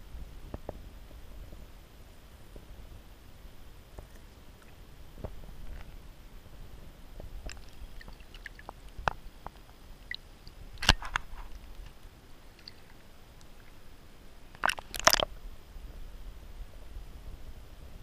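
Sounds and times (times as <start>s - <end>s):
fish splashing at water surface: 7.4s - 8.8s, 14.5s - 15.3s.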